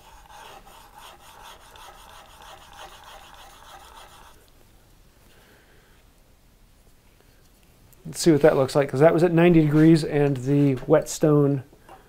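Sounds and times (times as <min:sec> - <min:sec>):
chisel scraping on sharpening plate: 0:00.0 - 0:04.4.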